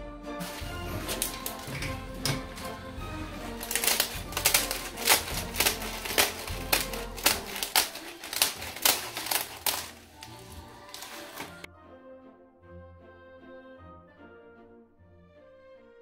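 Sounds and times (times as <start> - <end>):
scissors cutting brittle sheets: 0.4 - 2.8, 3.4 - 11.7.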